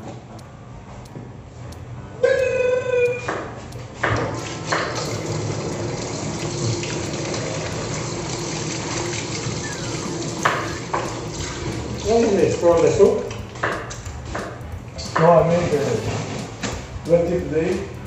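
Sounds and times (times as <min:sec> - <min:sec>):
tap running into sink: 0:04.0 - 0:16.8.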